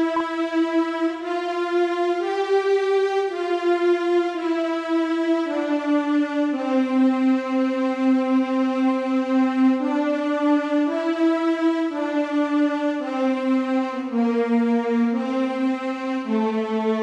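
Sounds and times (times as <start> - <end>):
slow low instrumental melody: 0.0 - 0.8.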